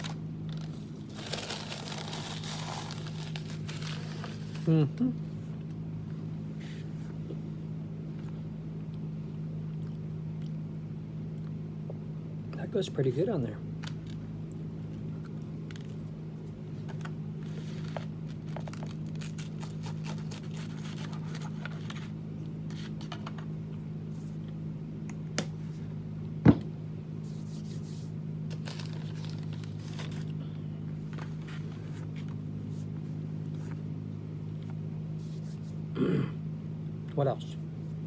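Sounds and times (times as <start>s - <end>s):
rustling and handling noises: 0.0s - 5.8s, 15.2s - 23.5s, 27.2s - 33.9s
low machine hum: 0.0s - 38.0s.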